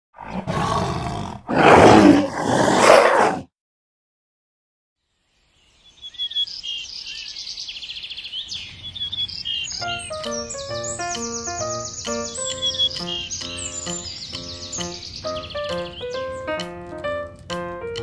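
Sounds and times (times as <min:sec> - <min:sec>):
small birds chirping: 0:05.0 - 0:17.7.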